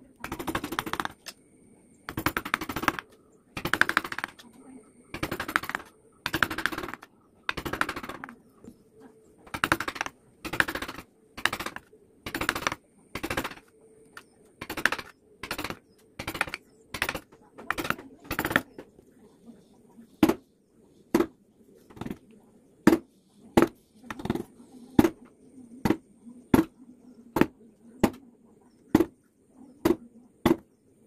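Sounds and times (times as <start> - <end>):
sharp clicks: 0.2 - 1.4, 2.1 - 4.5, 5.1 - 8.4, 9.5 - 18.7
power chisel hammering into wood: 2.1 - 3.0, 3.6 - 4.4, 9.5 - 13.6.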